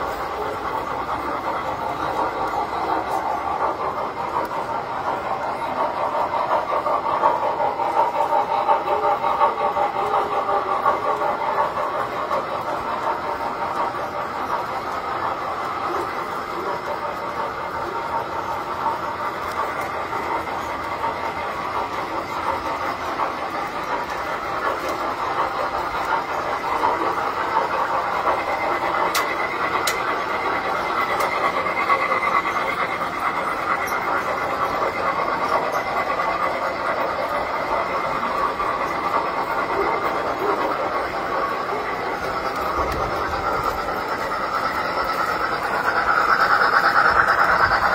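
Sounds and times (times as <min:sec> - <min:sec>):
model trains clattering on metal track: 0:00.0 - 0:47.9.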